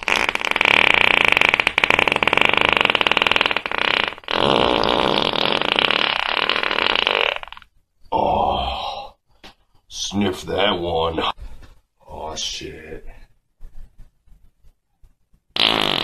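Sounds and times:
person farting: 0.0s - 7.7s, 15.5s - 16.0s.

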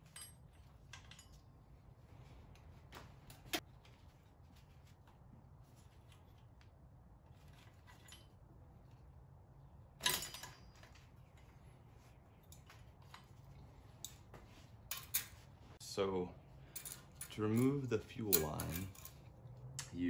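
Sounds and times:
metal tools clicking and clinking: 0.0s - 1.5s, 10.0s - 11.5s, 12.4s - 14.2s, 14.9s - 15.4s, 16.7s - 20.0s
low steady hum: 0.0s - 20.0s.

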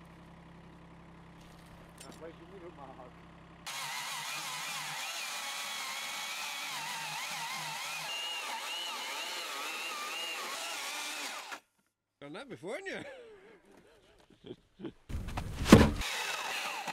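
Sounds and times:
chainsaw running at high revs: 3.6s - 11.6s, 16.0s - 16.9s.

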